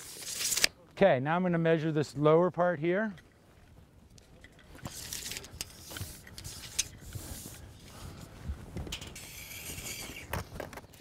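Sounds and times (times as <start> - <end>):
tape measure scraping on roof: 0.0 - 0.7, 4.8 - 7.8, 8.9 - 11.0.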